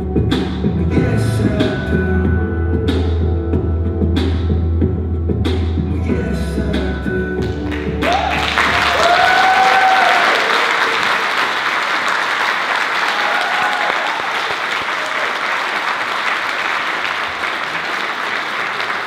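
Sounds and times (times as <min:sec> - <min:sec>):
audience applauding: 0:07.7 - 0:19.0
whoops and cheers: 0:08.0 - 0:11.3, 0:13.0 - 0:15.6.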